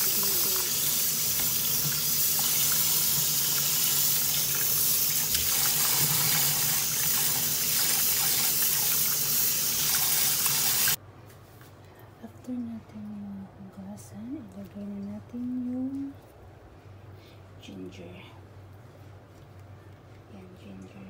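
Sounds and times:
tap water running into sink: 0.0 - 11.0.

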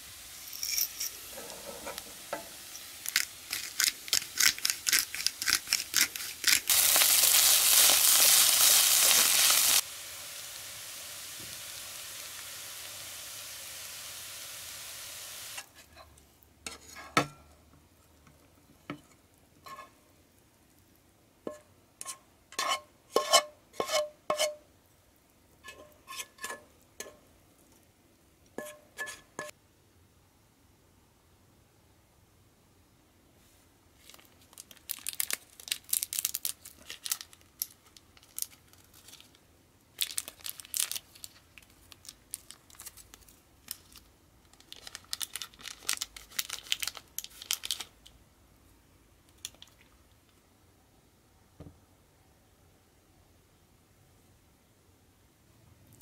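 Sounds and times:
rice sizzling in a frying pan: 0.0 - 15.8
spatula scraping a pan: 0.5 - 6.8, 15.5 - 17.3, 18.9 - 20.0, 21.5 - 24.6, 25.6 - 27.2, 28.6 - 29.5.

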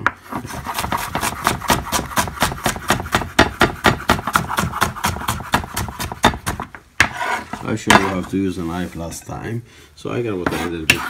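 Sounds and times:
knife chopping on wooden board: 0.0 - 8.2, 10.5 - 11.0.

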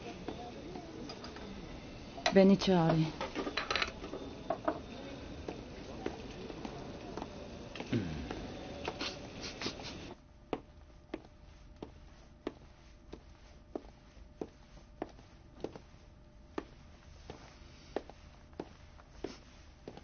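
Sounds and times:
busy kitchen noise: 0.0 - 10.2
footsteps walking: 0.0 - 20.0
kitchen clatters: 3.2 - 4.8.

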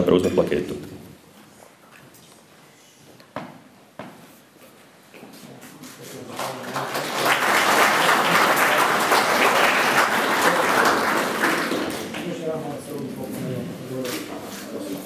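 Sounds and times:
audience applauding: 6.3 - 12.2.

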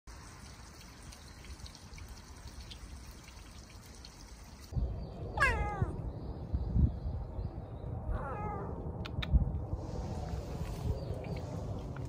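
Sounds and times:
faint water drips: 0.1 - 4.8
trickling water: 0.1 - 4.8
cat meowing: 5.3 - 6.0, 8.1 - 8.8.

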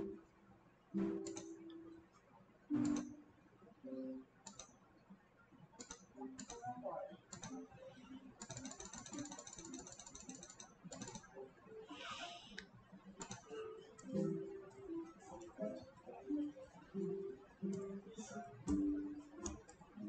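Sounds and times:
computer mouse clicks: 1.2 - 1.6, 2.8 - 3.2, 4.4 - 4.7, 5.8 - 6.7, 7.3 - 7.8, 8.4 - 11.3, 12.5 - 14.3
rapid ticks: 4.4 - 4.8, 5.8 - 7.7, 8.4 - 11.4, 12.5 - 14.8.

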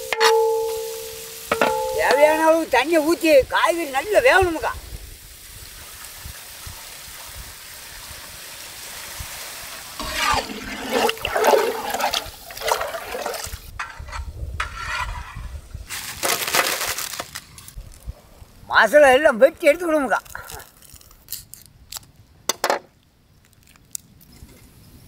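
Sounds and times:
splashing and knocking in pan: 1.5 - 2.4, 9.2 - 14.7
water pouring into hot pan: 4.0 - 13.7.

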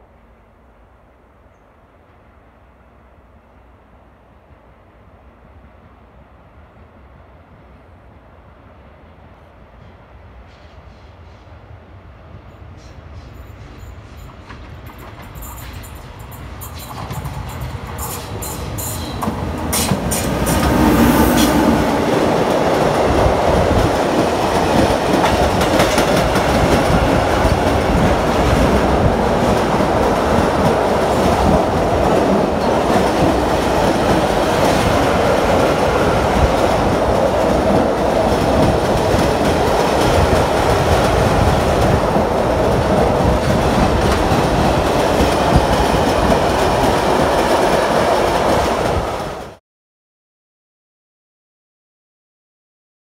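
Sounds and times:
electric locomotive passing: 4.8 - 49.6
steel wheels rolling on rails: 13.4 - 49.4.

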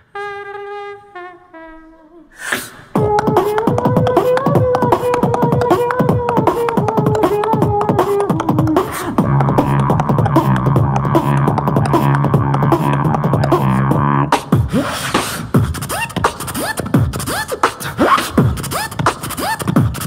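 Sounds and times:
beatboxing vocal drum beats: 2.4 - 20.0
hummed tune: 3.0 - 14.4
low buzzing bass drone: 8.6 - 14.3.

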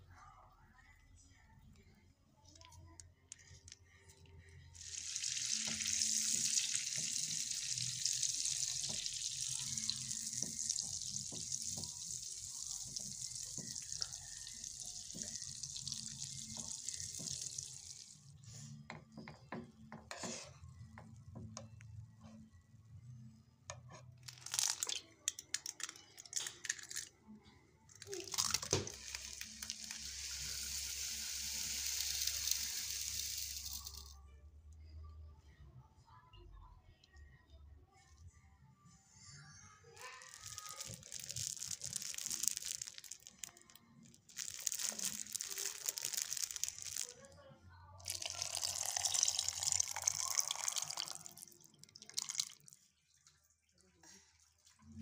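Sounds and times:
sugar pouring into plastic jar: 4.8 - 18.7, 24.2 - 27.1, 28.0 - 34.2, 40.0 - 47.3, 48.0 - 52.8
liquid pouring hiss: 4.8 - 18.8, 28.0 - 34.1, 40.2 - 47.1, 48.0 - 52.8.

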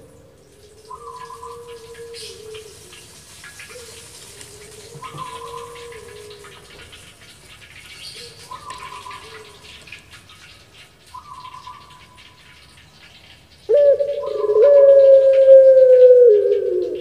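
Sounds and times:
dove long coo: 0.0 - 7.0, 8.2 - 9.8, 13.7 - 17.0
faint dove cooing: 0.6 - 7.0, 13.7 - 17.0.

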